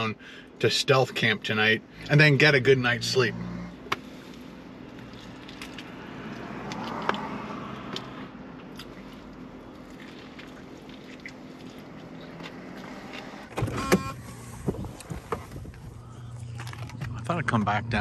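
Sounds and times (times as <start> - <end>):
vehicle passing: 1.9 - 18.0
low cabin hum: 8.0 - 18.0.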